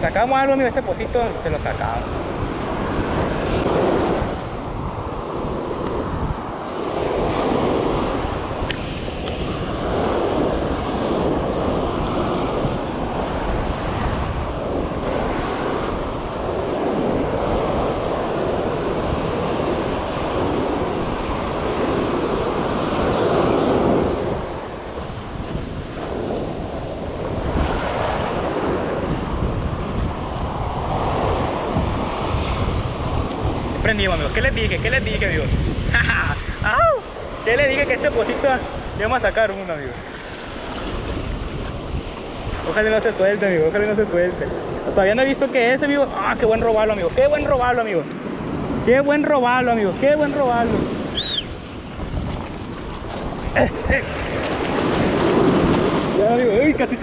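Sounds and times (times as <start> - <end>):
surf breaking on beach: 0.0 - 57.0
wind buffeting microphone: 0.0 - 57.0.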